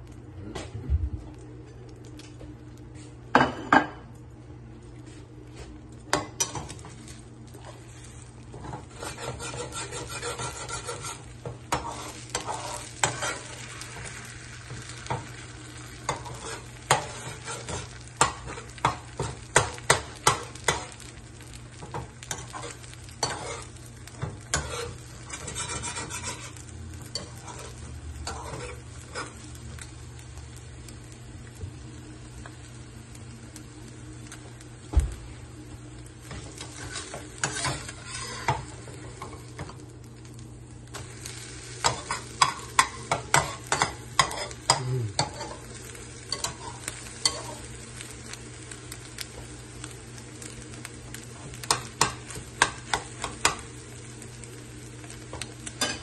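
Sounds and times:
eggs sizzling in a frying pan: 0.0 - 56.0
steady low hum: 0.0 - 56.0
spatula scraping a pan: 7.6 - 15.3, 16.0 - 29.4, 36.3 - 39.4, 41.2 - 47.7.

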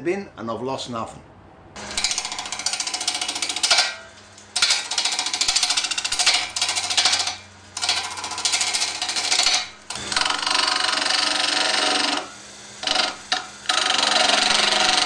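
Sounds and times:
wood lathe humming: 1.8 - 15.0
gouge cutting with rattle: 4.6 - 15.0.

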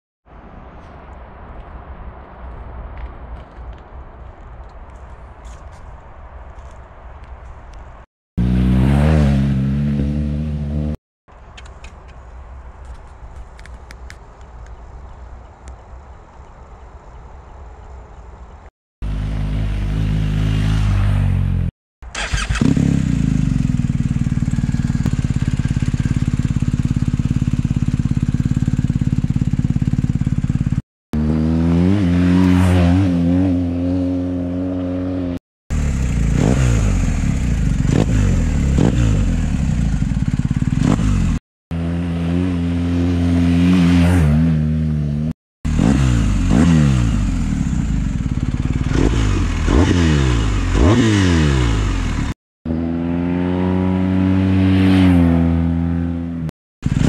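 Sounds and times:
motorcycle engine revving: 8.4 - 11.0, 19.0 - 57.0.

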